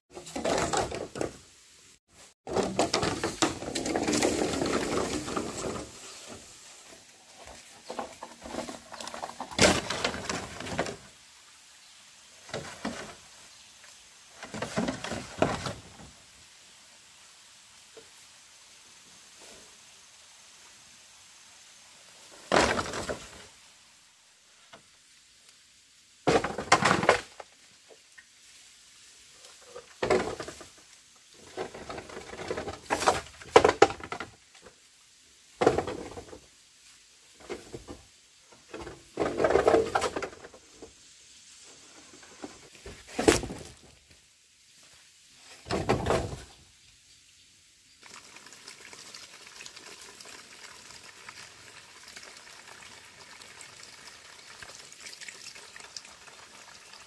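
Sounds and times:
bamboo poles clattering: 0.1 - 1.6, 2.2 - 11.2, 12.4 - 16.2, 22.3 - 23.6, 26.2 - 28.0, 29.4 - 34.8, 35.6 - 36.6, 37.3 - 41.0, 41.7 - 44.2, 45.4 - 46.7
hose water running into basin: 48.0 - 57.0.

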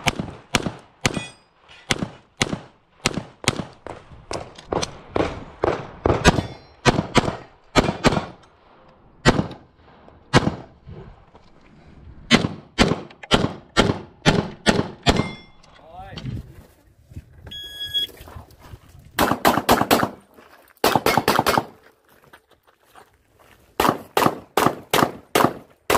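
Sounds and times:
pistol shots: 1.9 - 8.4, 12.3 - 15.3, 19.2 - 20.2, 20.8 - 21.8, 23.8 - 25.9.

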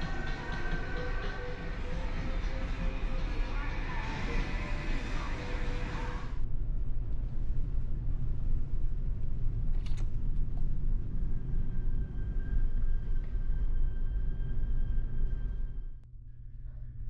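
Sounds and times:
ship engines rumbling: 0.0 - 6.4.

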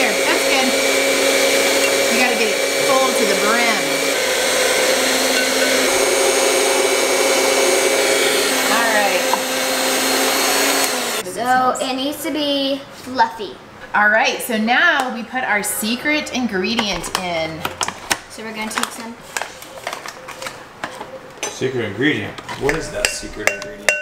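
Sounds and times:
electric stand mixer running: 0.0 - 11.2.

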